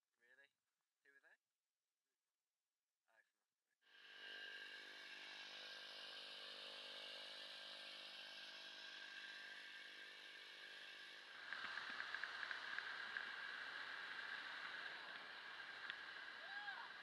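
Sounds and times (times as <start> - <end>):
light ticks: 11.4 - 17.0.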